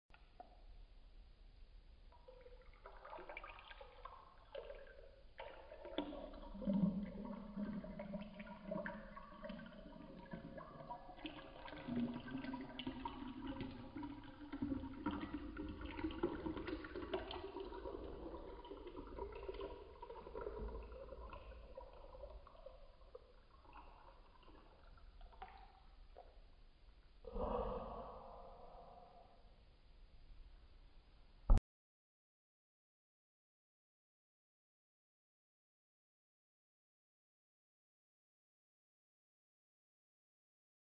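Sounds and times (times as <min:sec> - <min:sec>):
water pouring into glass: 0:02.1 - 0:26.4.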